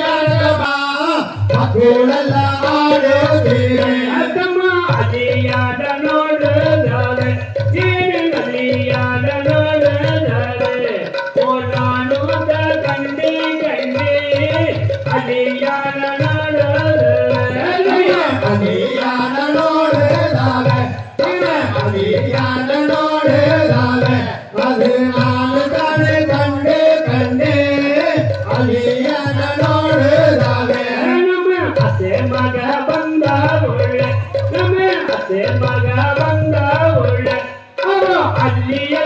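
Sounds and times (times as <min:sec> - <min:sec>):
person singing: 0:00.0 - 0:39.0
rhythmic drum beat: 0:00.0 - 0:39.0.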